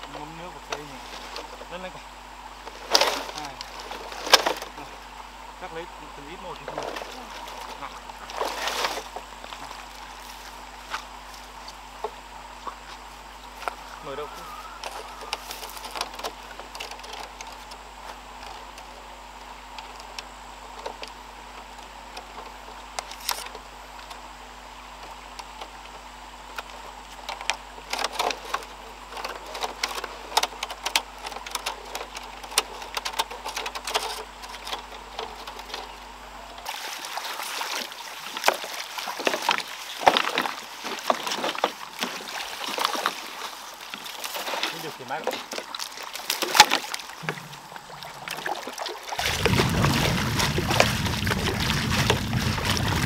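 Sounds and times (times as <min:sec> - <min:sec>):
water splashing and sloshing: 0:02.6 - 0:05.1, 0:06.6 - 0:17.8, 0:25.0 - 0:53.0
small clicks and clatters: 0:14.8 - 0:24.2, 0:25.0 - 0:36.0.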